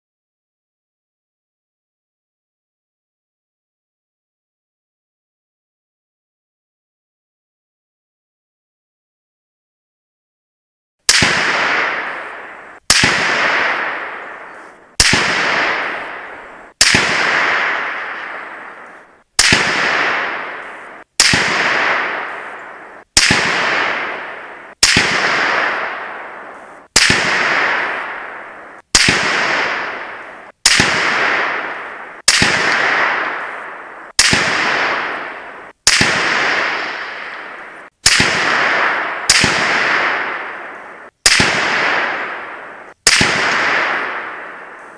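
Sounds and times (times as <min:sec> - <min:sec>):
rifle shots with echo: 0:11.1 - 0:44.9.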